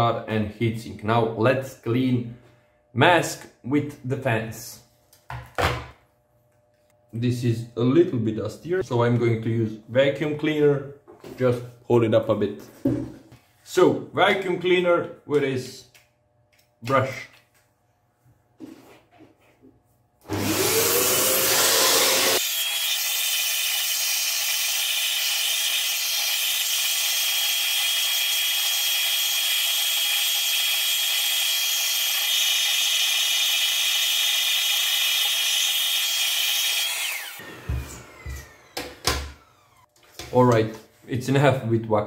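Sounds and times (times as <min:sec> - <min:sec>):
vacuum cleaner motor whine: 0:20.2 - 0:22.8, 0:24.4 - 0:40.0.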